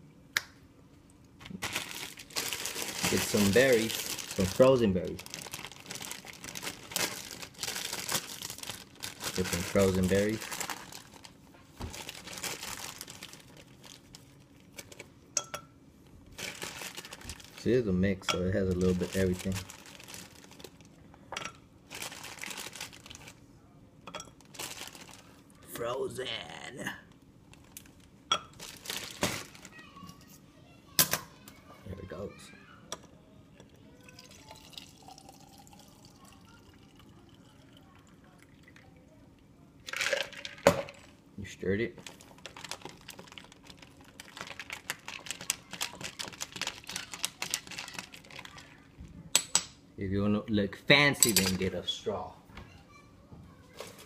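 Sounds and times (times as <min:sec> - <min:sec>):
plastic bag crinkling: 0:01.4 - 0:15.1, 0:16.3 - 0:17.8, 0:18.6 - 0:21.0, 0:21.9 - 0:23.4, 0:24.4 - 0:25.4, 0:27.5 - 0:30.0, 0:41.9 - 0:49.0
liquid trickling and dripping: 0:33.7 - 0:39.0
drink pouring into glass: 0:34.0 - 0:39.0, 0:39.9 - 0:40.9.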